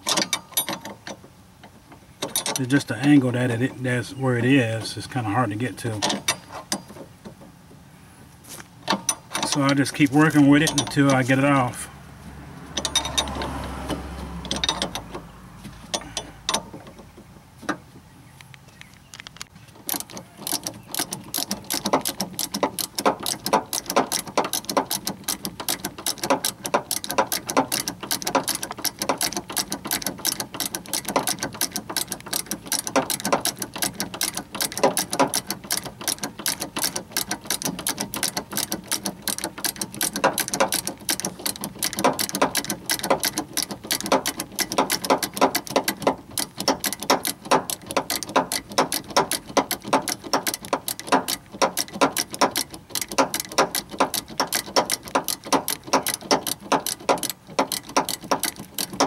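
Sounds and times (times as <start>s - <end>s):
hand ratchet clicking: 8.9s - 11.4s, 12.8s - 15.2s, 19.2s - 59.0s.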